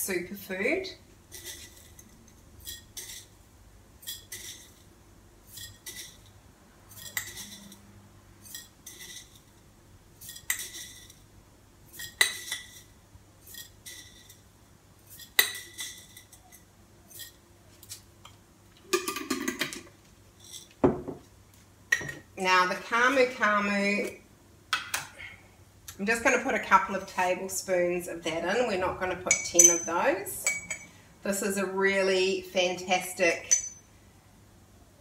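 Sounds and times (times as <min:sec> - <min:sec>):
metal spoon clinking on glass jar: 0:06.9 - 0:07.8, 0:29.3 - 0:30.9, 0:33.4 - 0:33.8.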